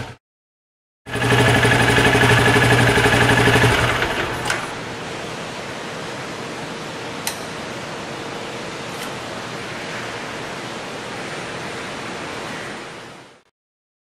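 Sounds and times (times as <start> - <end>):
motorcycle engine idling: 1.1 - 4.5
sharp click: 7.2 - 7.5.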